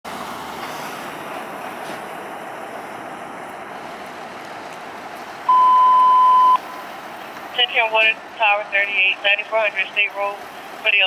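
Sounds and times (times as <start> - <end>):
street noise: 0.0 - 11.0
wind: 0.0 - 11.0
radio alert beep: 5.5 - 6.9.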